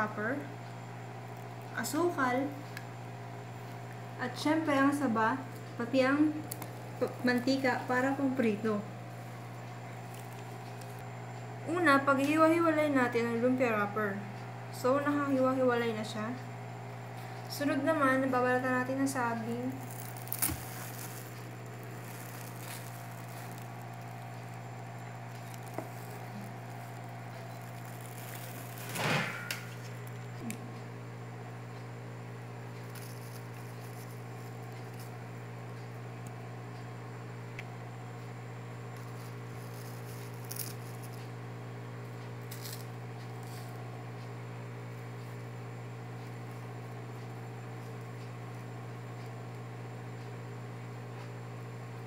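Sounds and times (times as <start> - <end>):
steady low hum: 0.0 - 52.0
soft rustles of banana peels: 5.6 - 11.0, 19.1 - 30.4, 32.6 - 36.4, 38.9 - 41.4, 42.0 - 49.6
handling noise rustling: 19.8 - 30.1.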